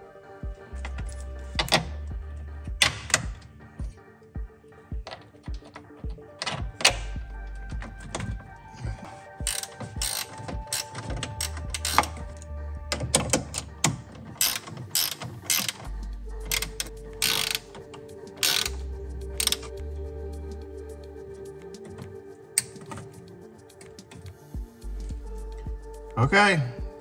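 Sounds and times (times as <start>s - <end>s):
background music: 0.0s - 27.0s
ratchet wrench clicking: 9.4s - 12.4s, 13.4s - 19.8s.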